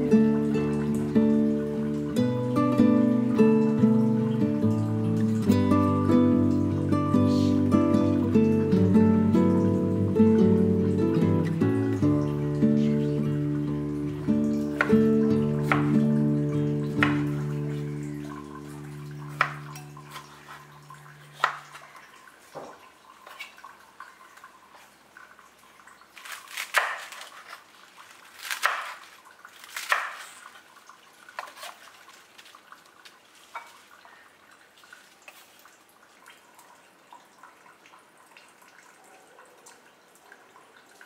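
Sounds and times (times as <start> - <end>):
knife tapping on cutting board: 17.0 - 17.4
knife crunching through cabbage: 26.2 - 30.6, 31.3 - 33.8.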